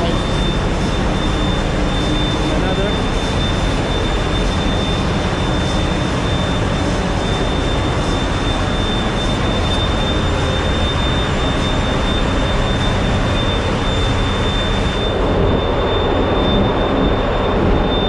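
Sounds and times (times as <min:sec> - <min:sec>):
high whine: 0:00.0 - 0:18.0
ship engine room machinery din: 0:00.0 - 0:18.0.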